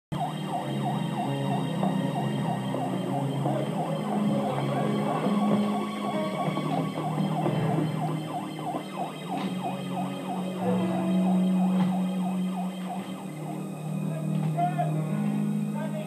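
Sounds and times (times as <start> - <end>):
electronic alarm warbling: 0.2 - 14.4.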